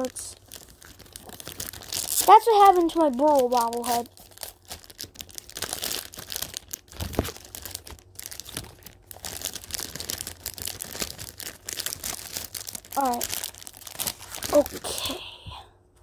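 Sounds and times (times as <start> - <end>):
paper wrapper crinkling: 0.0 - 15.2.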